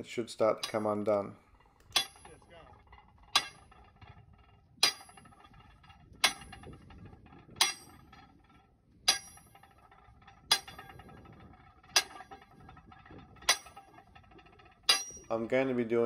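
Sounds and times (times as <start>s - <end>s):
sledgehammer striking steel bar: 1.9s - 2.4s, 4.8s - 5.3s, 9.1s - 9.6s, 14.9s - 15.3s.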